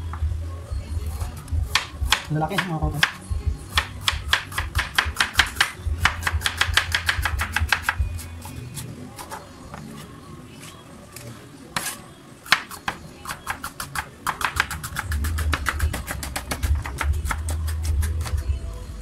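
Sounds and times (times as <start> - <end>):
knife chopping on wooden board: 1.7 - 3.2, 3.8 - 8.0, 11.8 - 17.6.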